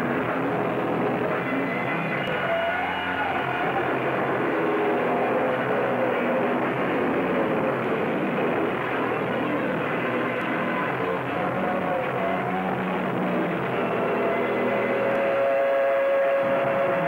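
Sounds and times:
distorted electric guitar and bass: 0.0s - 17.0s.

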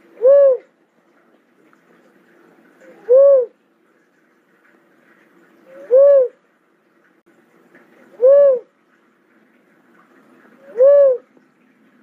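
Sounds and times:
dove cooing: 0.0s - 0.7s, 2.8s - 3.6s, 5.7s - 6.4s, 8.1s - 8.7s, 10.5s - 11.3s.

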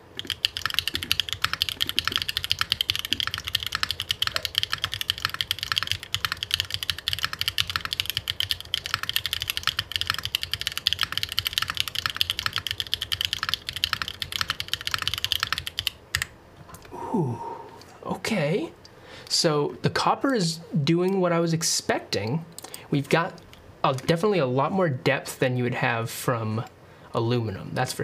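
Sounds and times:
fast mechanical keyboard typing: 0.0s - 16.3s.

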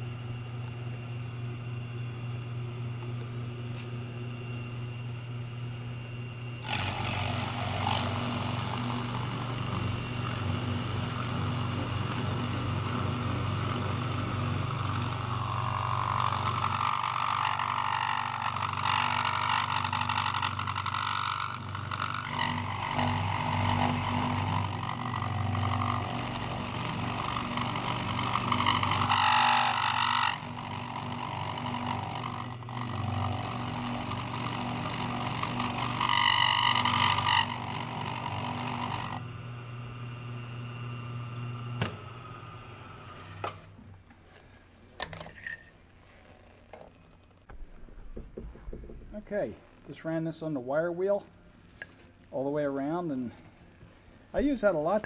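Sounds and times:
milling machine motor hum: 0.0s - 45.1s
end mill cutting metal: 6.6s - 39.3s.

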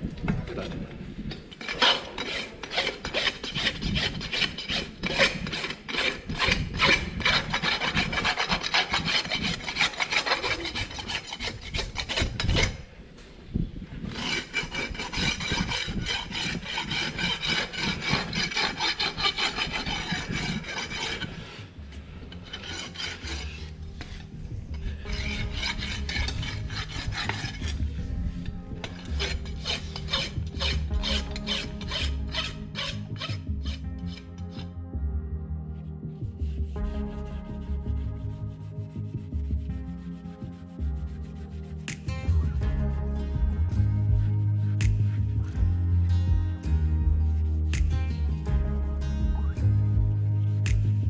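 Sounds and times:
rasp scraping strokes: 1.4s - 12.9s, 14.0s - 34.7s.

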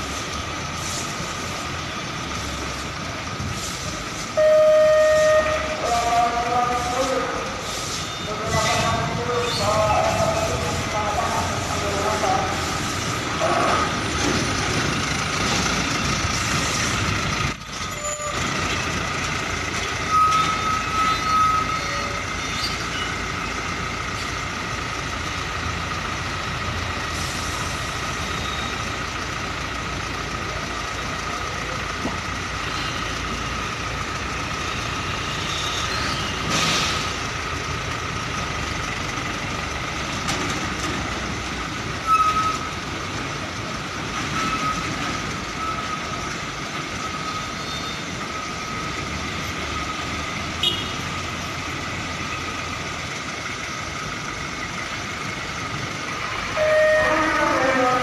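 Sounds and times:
diesel truck engines running: 0.0s - 58.0s
air brake hiss: 7.6s - 8.2s, 27.1s - 27.9s.

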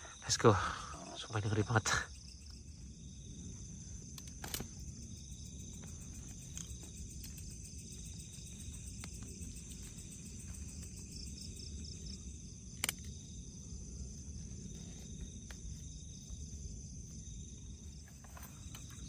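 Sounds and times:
night insects trilling: 0.0s - 19.0s.

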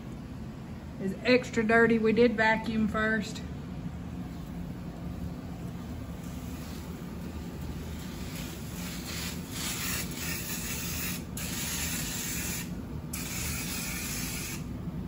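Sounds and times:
aerosol can spraying: 8.7s - 14.6s.

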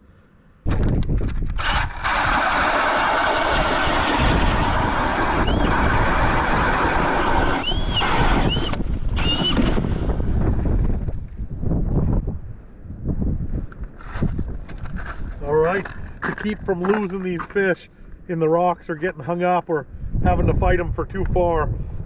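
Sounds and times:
ice auger boring: 1.6s - 10.1s.

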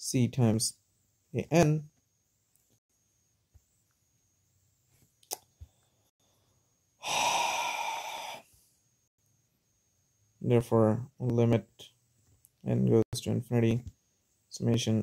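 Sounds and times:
person sighing: 7.0s - 8.5s.

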